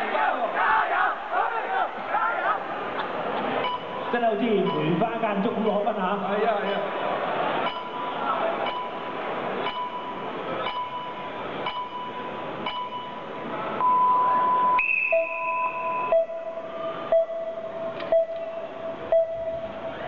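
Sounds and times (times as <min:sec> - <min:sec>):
crowd murmur: 0:00.0 - 0:04.2, 0:05.9 - 0:12.6, 0:13.2 - 0:20.0
countdown timer beeping: 0:03.6 - 0:05.2, 0:07.6 - 0:20.0
low tone with sharp clicks: 0:17.1 - 0:19.4.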